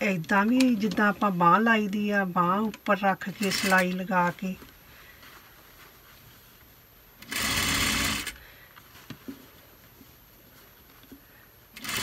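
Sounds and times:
sewing machine stitching: 7.2 - 8.4, 11.8 - 12.0.

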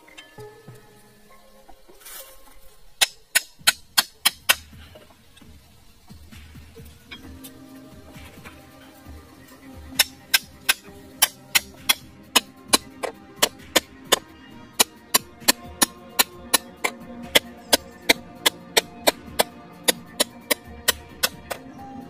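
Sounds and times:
rapid sharp knocks: 10.0 - 21.6.

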